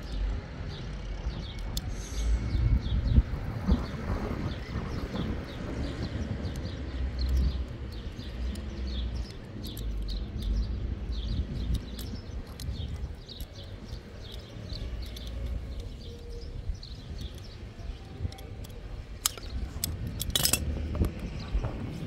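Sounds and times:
wind on microphone: 1.3s - 22.0s
small bird chirping: 4.6s - 20.2s.

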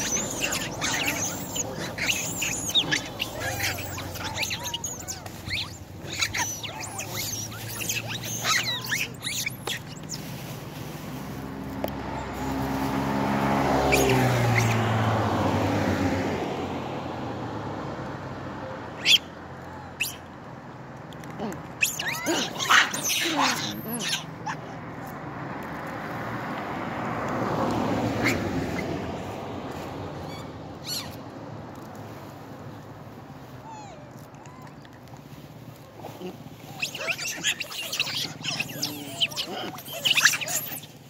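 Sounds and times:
monkeys squeaking and chirping: 0.0s - 10.4s, 13.8s - 14.9s, 19.0s - 19.3s, 19.9s - 20.2s, 21.4s - 24.7s, 28.2s - 28.9s, 30.2s - 31.3s, 36.0s - 41.0s
vehicle passing by: 0.0s - 41.0s.

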